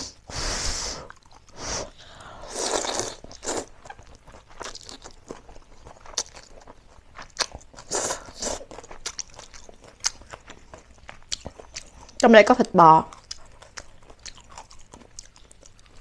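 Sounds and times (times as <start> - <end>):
person slurping noodles: 0.0 - 3.7
wet chewing: 1.0 - 16.0.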